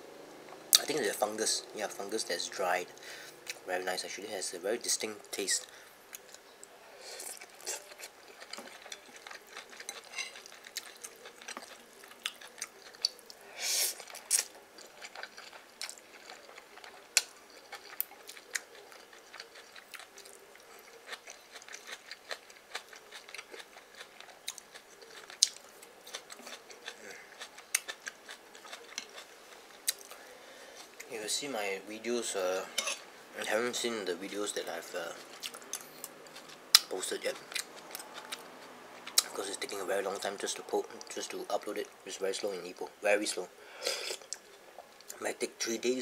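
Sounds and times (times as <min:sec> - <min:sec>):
person chewing noodles: 0:05.7 - 0:31.1, 0:35.1 - 0:39.4.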